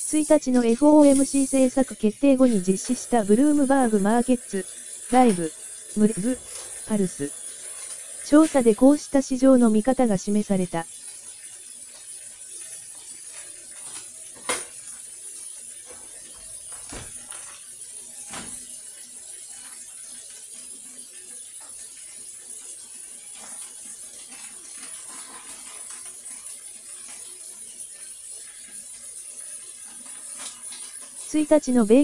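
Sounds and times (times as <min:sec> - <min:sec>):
steady high hiss: 0:00.0 - 0:07.3.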